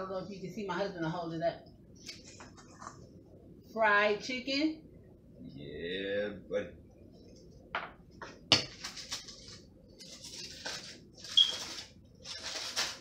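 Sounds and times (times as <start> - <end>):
aluminium foil crinkling: 8.7 - 13.0.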